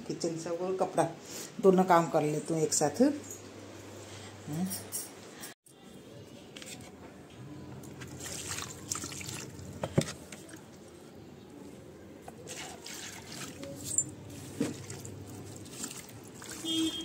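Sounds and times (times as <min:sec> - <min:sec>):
water trickling and dripping: 0:07.8 - 0:10.9.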